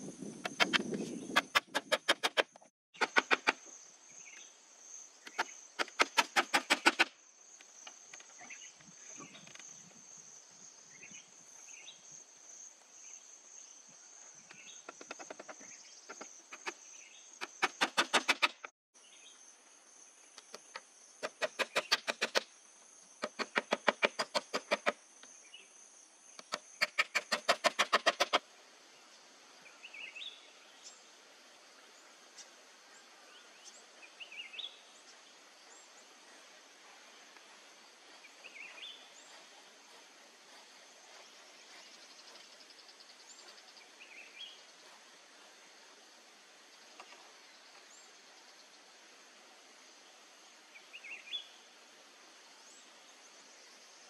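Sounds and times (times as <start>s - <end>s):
insects fast clicking pulses: 0.0s - 4.4s, 5.2s - 10.0s, 14.4s - 18.7s, 20.3s - 25.4s, 26.3s - 28.5s.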